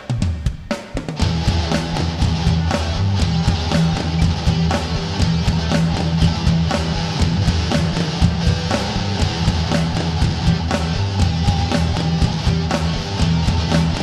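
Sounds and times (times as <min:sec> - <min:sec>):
distorted electric guitar: 0:00.0 - 0:14.0
drum kit beat: 0:00.0 - 0:14.0.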